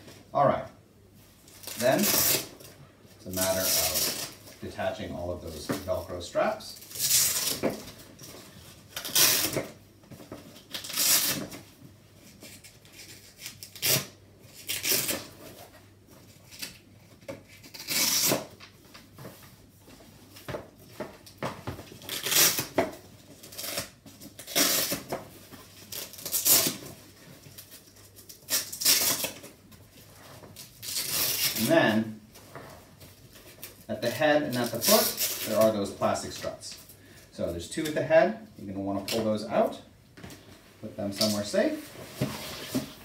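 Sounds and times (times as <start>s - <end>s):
velcro straps ripping open: 1.5s - 2.5s, 3.3s - 4.4s, 6.7s - 7.8s, 8.9s - 9.7s, 10.6s - 11.6s, 12.4s - 15.3s, 17.5s - 18.6s, 22.0s - 22.8s, 23.4s - 25.1s, 25.8s - 26.9s, 27.6s - 29.5s, 30.6s - 31.8s, 34.4s - 35.8s.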